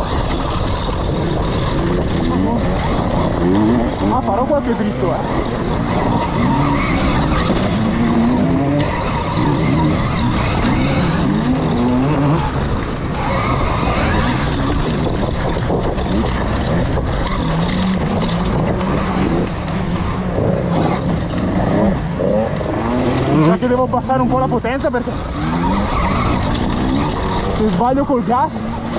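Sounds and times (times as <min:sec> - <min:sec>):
electric motor drone rising and falling: 0:00.0 - 0:28.9
wind and tyre noise: 0:00.0 - 0:28.9.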